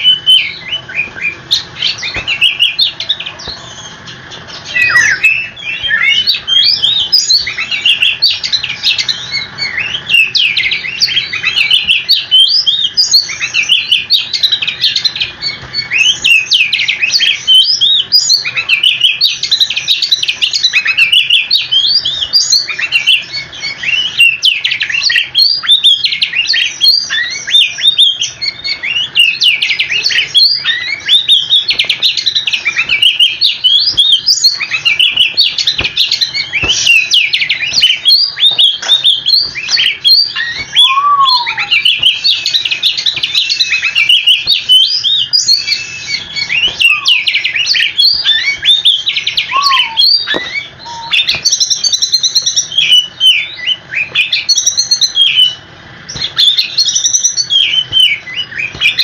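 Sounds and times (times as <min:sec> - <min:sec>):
magpie-robin singing: 0:00.0 - 0:59.0.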